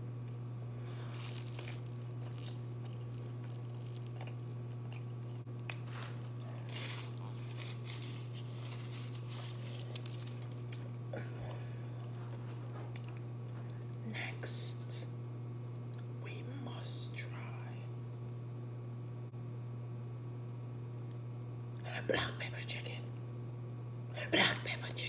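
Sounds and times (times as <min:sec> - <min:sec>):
steady low hum: 0:00.0 - 0:25.0
chewing and crunching: 0:00.8 - 0:14.0.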